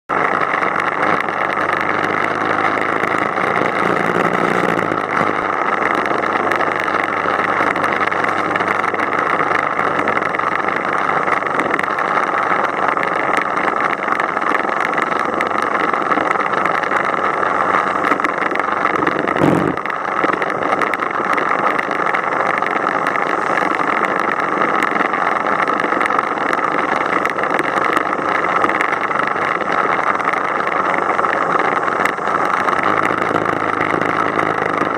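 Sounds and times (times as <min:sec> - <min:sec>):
motorcycle engine drone: 0:00.1 - 0:34.9
road noise: 0:00.1 - 0:34.9
wind rushing on microphone: 0:00.2 - 0:34.9
brief thump: 0:19.4 - 0:19.8.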